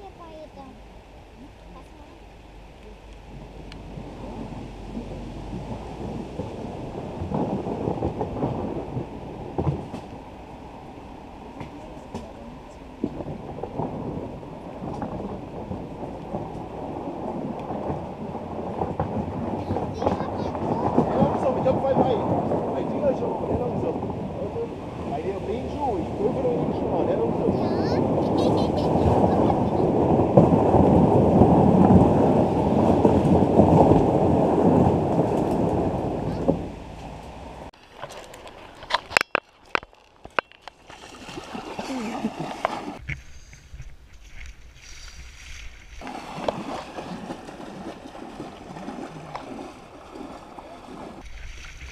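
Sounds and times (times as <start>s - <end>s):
canoe crunching over gravel: 29.9s - 51.9s.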